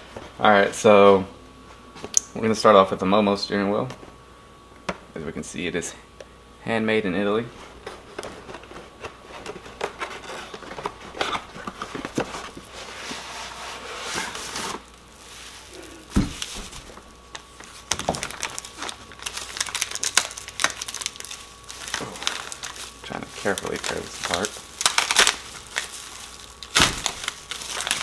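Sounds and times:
plastic packaging crinkling: 14.2 - 28.0.

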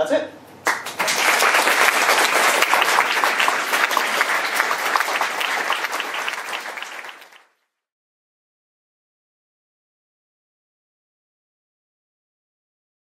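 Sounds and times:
audience applauding: 0.6 - 7.6.

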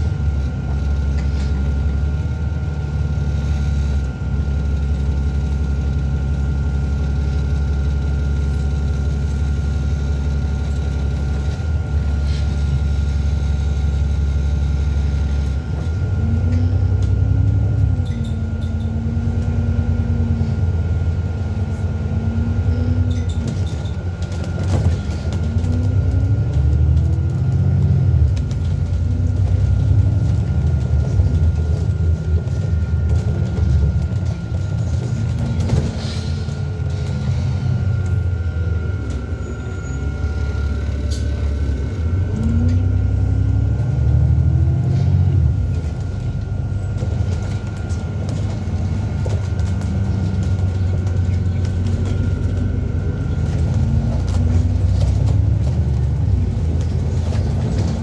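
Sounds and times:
bus engine running: 0.0 - 58.0
thin whine: 36.0 - 44.1.

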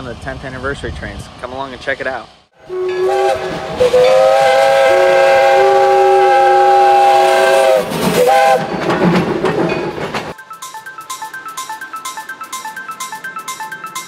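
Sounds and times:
steam locomotive whistle: 2.6 - 8.7.

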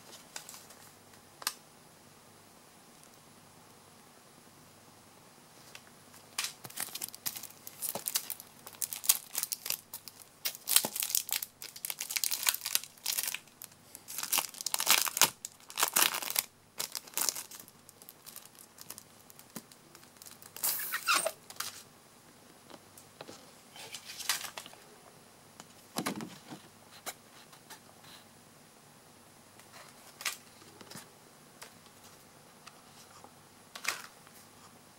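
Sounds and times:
plastic film crinkling: 6.4 - 21.8.

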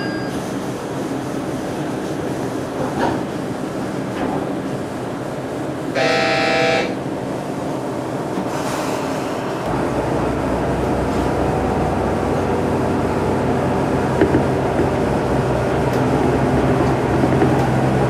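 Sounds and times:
train running noise: 0.0 - 18.0
diesel engine low rumble: 0.5 - 18.0
train horn blast: 5.9 - 7.0.

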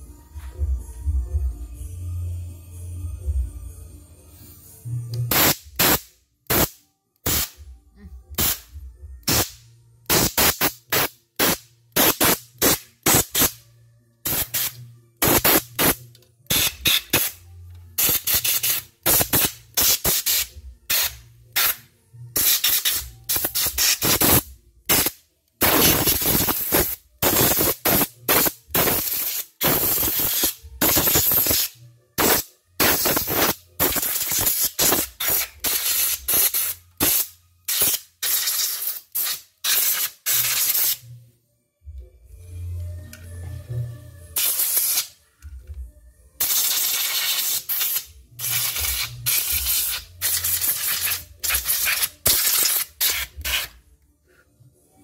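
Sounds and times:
compressed air blasts hissing: 5.3 - 7.6, 9.3 - 13.6, 14.2 - 17.4, 18.0 - 21.8, 22.4 - 41.0, 46.4 - 53.7.

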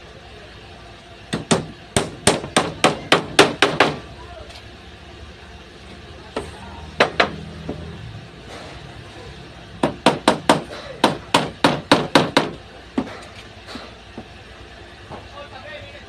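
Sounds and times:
hammer striking wood: 1.3 - 4.0, 7.0 - 7.8, 9.8 - 13.2.

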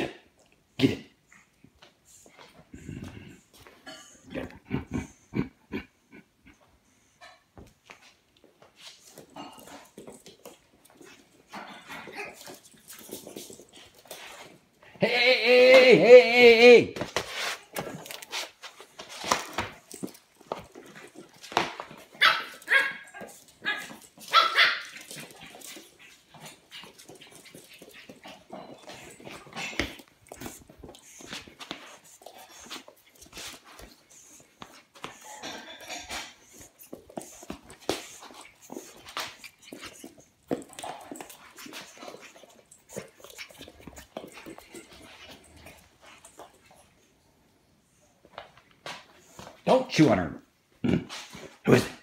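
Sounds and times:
scuffles: 7.6 - 15.0, 16.9 - 47.1
puppy sounds: 17.6 - 47.2
puppy barking: 22.2 - 25.1.

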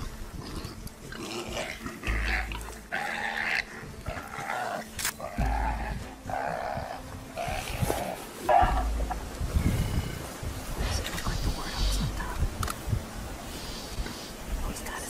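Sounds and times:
harsh animal cries: 1.1 - 9.1.

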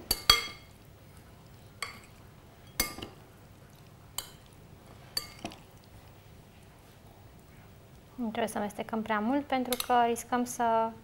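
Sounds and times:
metal spoon clinking glass bowl: 0.1 - 0.7.

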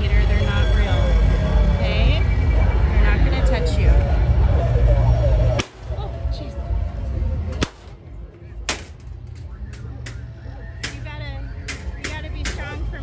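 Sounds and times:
steady low rumble: 0.0 - 13.0
sharp cracks: 5.6 - 5.9, 7.6 - 8.0, 8.6 - 10.2.

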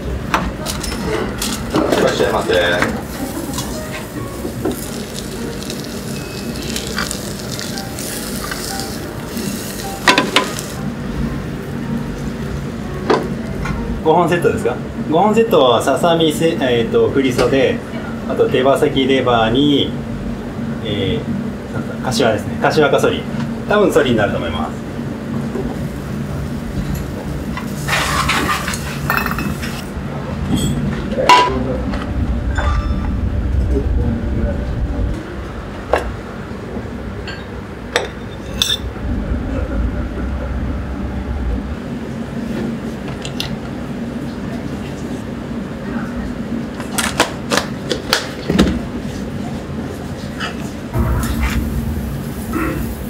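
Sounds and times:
steady low hum: 0.0 - 46.8, 48.8 - 53.0
dishes and utensils clinking: 0.6 - 10.7, 26.8 - 31.6, 32.5 - 33.2, 37.2 - 38.9
egg sizzling in a pan: 4.4 - 10.8.

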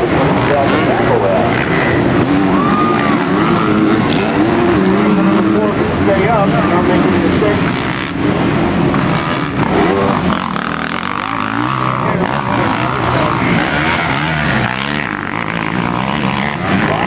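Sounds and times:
motocross engines revving: 0.0 - 17.0.

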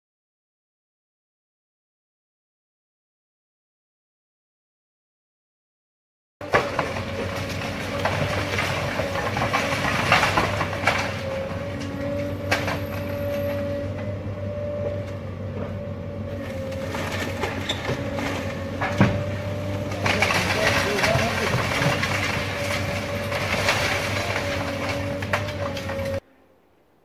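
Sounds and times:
brickwork cracking and rubble falling: 6.4 - 13.6, 16.5 - 26.2
excavator engine and hydraulics whine: 6.4 - 27.0.

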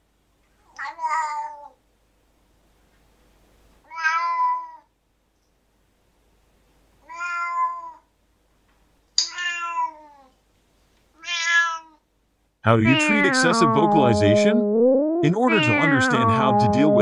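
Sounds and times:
cat meowing: 0.7 - 1.8, 3.8 - 4.9, 7.0 - 8.1, 9.3 - 10.4, 11.2 - 12.0, 12.7 - 14.4, 15.5 - 16.8.

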